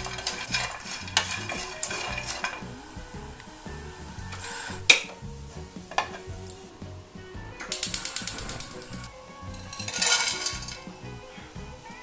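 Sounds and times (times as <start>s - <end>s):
dry rustle and rattle in pan: 0.0s - 5.1s, 7.7s - 12.0s
rapid igniter clicking: 0.0s - 12.0s.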